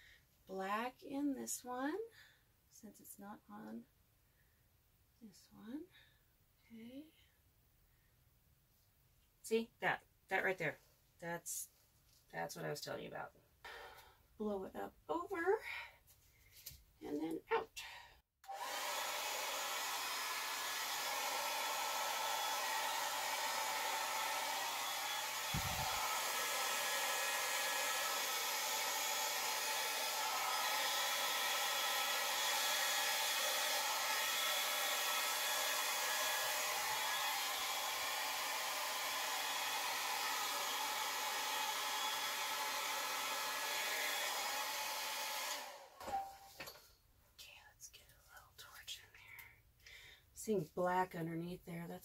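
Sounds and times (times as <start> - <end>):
hair dryer blowing: 18.4 - 46.3.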